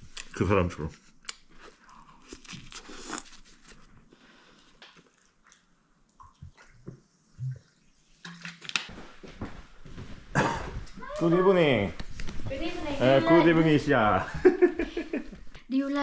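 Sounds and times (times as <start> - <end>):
man chewing food: 1.2 - 6.8.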